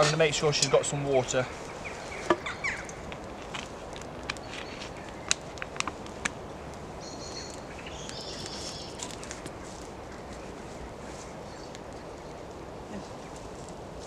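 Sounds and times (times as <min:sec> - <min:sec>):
bird calling: 0:00.0 - 0:03.0, 0:06.5 - 0:13.6
campfire crackling: 0:00.0 - 0:14.0
fire popping: 0:00.0 - 0:14.0.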